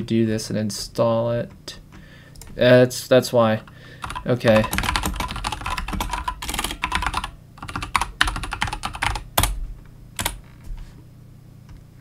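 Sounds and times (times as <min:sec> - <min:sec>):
typing on computer keyboard: 0:04.0 - 0:09.6, 0:10.2 - 0:10.4.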